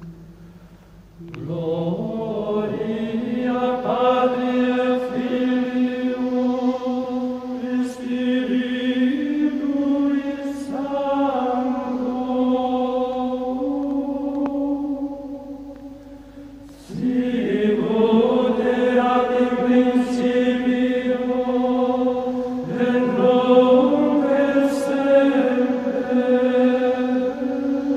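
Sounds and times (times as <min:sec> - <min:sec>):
person singing long held notes: 0:01.2 - 0:27.9.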